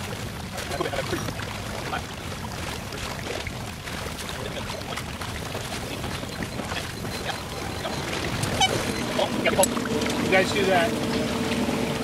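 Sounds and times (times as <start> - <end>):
water rushing along hull: 0.0 - 12.0.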